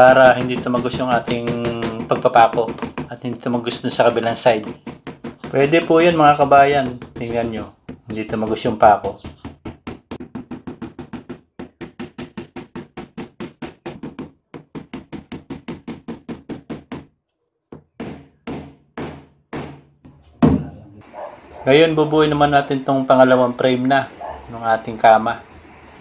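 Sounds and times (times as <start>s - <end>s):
hammer driving nails into wood: 17.8s - 19.9s.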